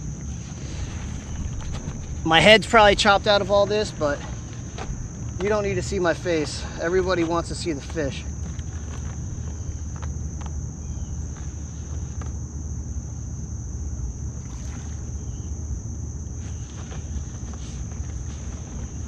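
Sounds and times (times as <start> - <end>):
water rumbling: 0.0 - 10.1
high-pitched insect drone: 0.0 - 19.0
wind: 0.0 - 19.0.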